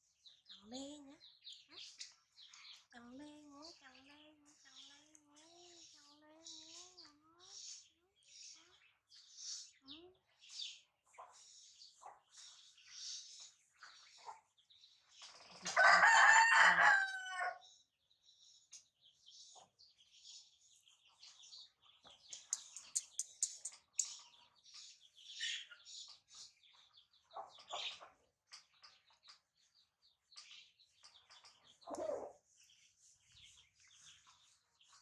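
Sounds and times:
rooster crowing: 15.8 - 17.6
faint high-pitched chirps: 20.5 - 29.4.

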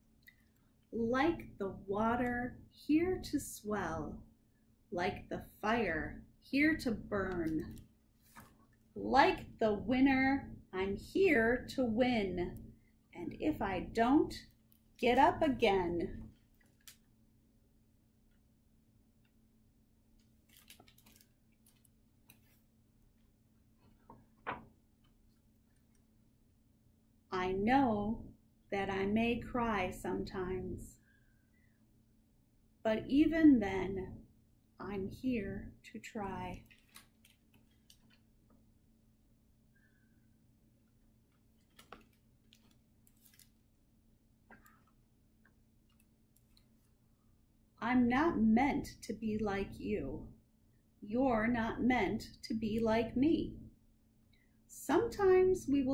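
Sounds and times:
book pages turning: 7.3 - 8.8, 20.2 - 22.8, 36.6 - 38.3, 41.3 - 43.8.

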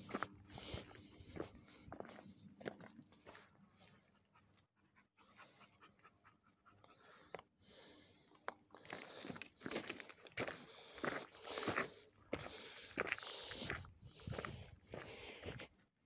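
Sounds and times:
footsteps on gravel: 0.0 - 3.4, 8.8 - 15.7
heavy breathing: 0.0 - 4.4, 6.8 - 15.8.

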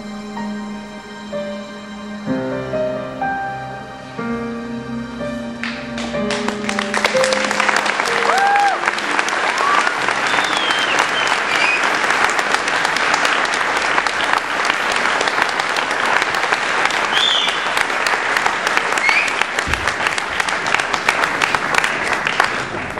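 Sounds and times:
audience clapping: 5.6 - 22.9
crowd whoops and whistles: 8.2 - 9.0, 9.6 - 12.1, 17.1 - 17.8, 19.0 - 19.5.

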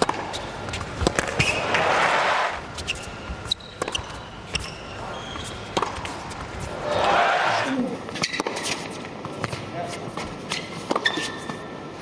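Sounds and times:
ball bouncing: 0.0 - 1.8, 2.8 - 6.7
racket striking tennis ball: 0.0 - 4.7, 5.4 - 7.6
sneaker squeaks: 1.2 - 1.8, 2.8 - 5.9, 10.4 - 11.7
crowd noise burst: 1.3 - 2.7, 6.7 - 7.8.

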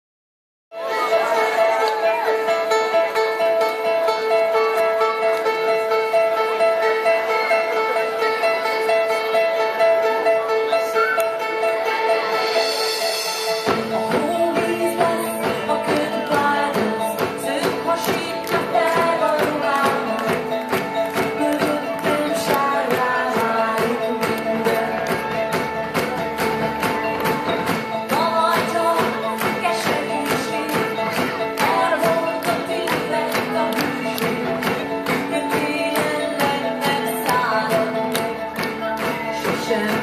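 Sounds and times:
live pop band with strings: 0.7 - 40.0
person singing: 10.8 - 40.0.

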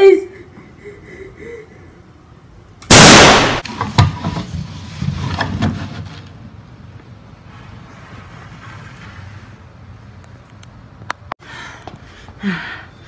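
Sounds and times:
loud gunshot: 2.9 - 3.7.

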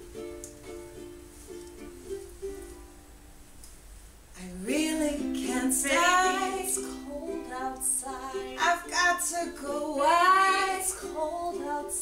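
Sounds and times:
ukulele: 0.0 - 3.7, 4.4 - 12.0
women singing a duet: 4.4 - 12.0.

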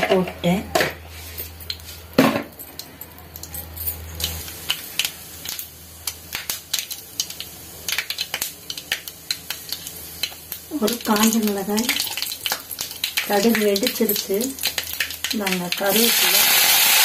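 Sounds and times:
faint sizzle: 0.4 - 17.0
mustard seeds popping in oil: 4.1 - 17.0.

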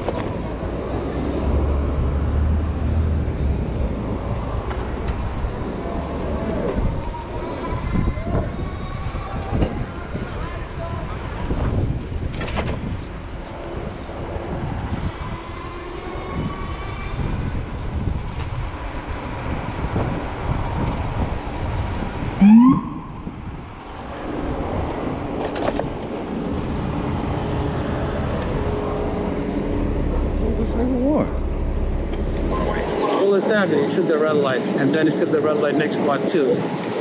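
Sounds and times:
street traffic: 0.0 - 37.0
wind noise: 2.8 - 33.2
siren whoop: 22.4 - 23.2.

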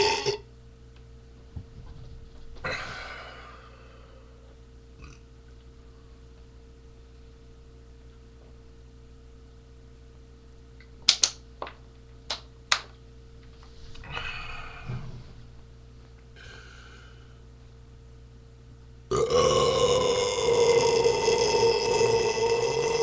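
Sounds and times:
man belching: 0.0 - 0.5, 5.0 - 5.2, 19.1 - 23.0.

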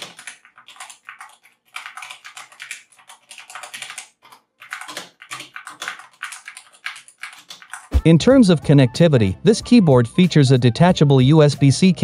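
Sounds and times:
mechanical keyboard typing: 0.0 - 8.1.

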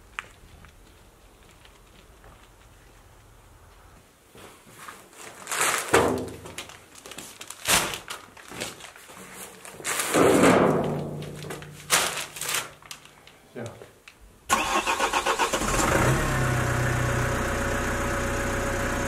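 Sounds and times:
paper bags rustling: 4.5 - 13.4.

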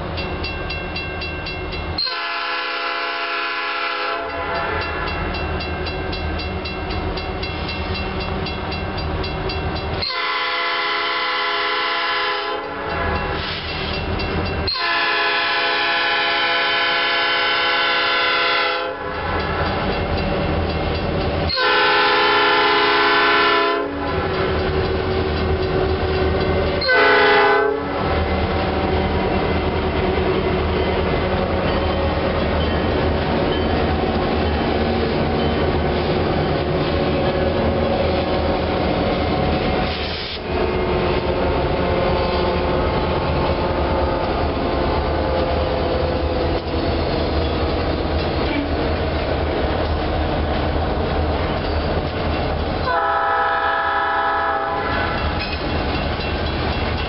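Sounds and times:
locomotive air horn blasts: 2.0 - 5.0, 10.0 - 12.8, 14.7 - 19.1, 21.5 - 24.3, 26.8 - 28.0, 52.8 - 55.3.

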